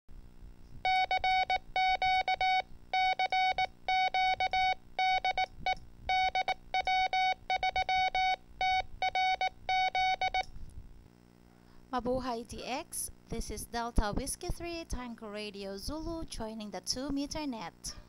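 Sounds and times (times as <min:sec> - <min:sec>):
morse code beeps: 0:00.9 - 0:10.4.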